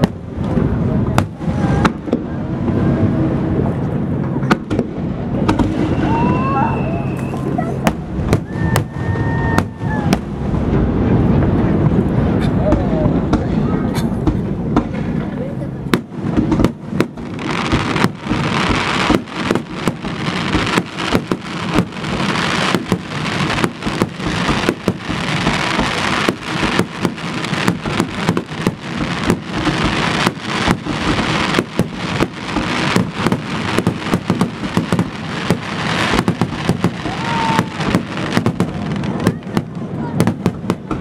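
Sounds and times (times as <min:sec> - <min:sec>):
rumble and crackle: 0:09.5 - 0:41.0
firework shells bursting: 0:15.9 - 0:39.6.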